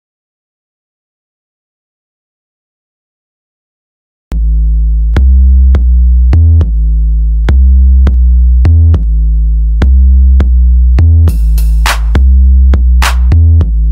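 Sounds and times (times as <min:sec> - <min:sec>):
electronic music with heavy synth bass: 0:04.4 - 0:13.9.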